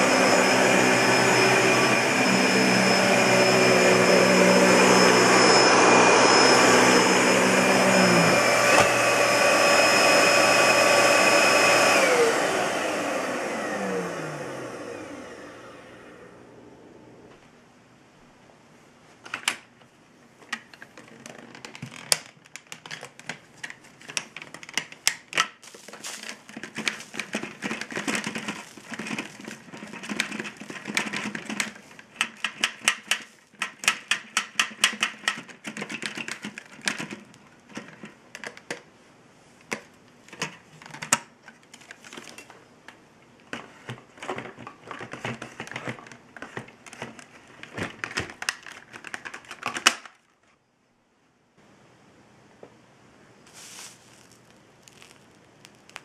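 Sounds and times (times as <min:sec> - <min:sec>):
plastic clicking and rattling: 0:20.4 - 0:38.9, 0:39.6 - 0:42.5, 0:43.5 - 0:50.3.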